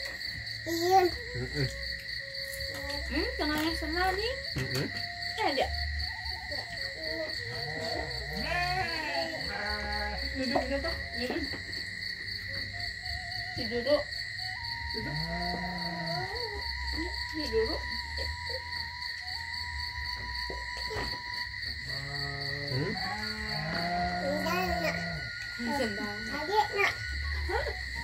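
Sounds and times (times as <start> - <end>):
pulsing insect chorus: 0.0 - 28.0.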